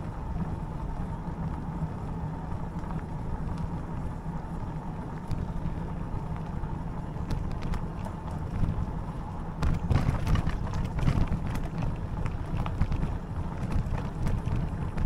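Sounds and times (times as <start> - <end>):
low tyre rumble: 0.0 - 15.0
wind buffeting microphone: 0.0 - 15.0.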